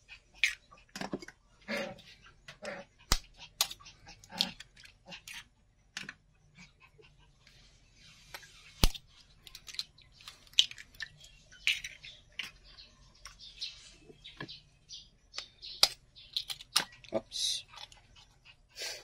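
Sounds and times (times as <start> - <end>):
small clicks and shell scrapes: 8.2 - 13.7, 15.3 - 18.6.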